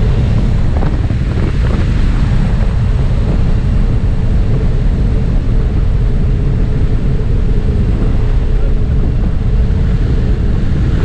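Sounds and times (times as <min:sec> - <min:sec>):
plane engine running: 0:00.0 - 0:11.0
wind rushing through open door: 0:00.0 - 0:11.0.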